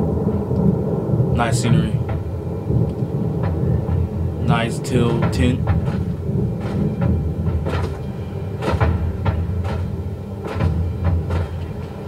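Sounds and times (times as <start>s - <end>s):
low rumble: 0.0s - 12.0s
sharp knocks or crunches: 3.4s - 12.0s.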